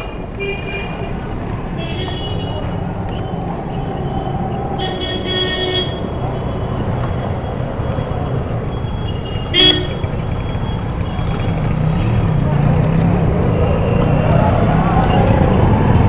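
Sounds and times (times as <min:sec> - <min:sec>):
busy street traffic: 0:00.0 - 0:16.0
vehicle horns honking: 0:00.4 - 0:02.8, 0:04.8 - 0:08.1, 0:08.7 - 0:10.8.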